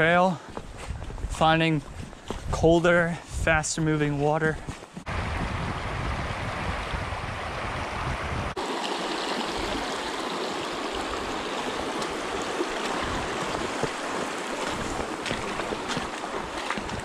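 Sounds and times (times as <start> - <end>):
stream rushing over stones: 5.1 - 17.0.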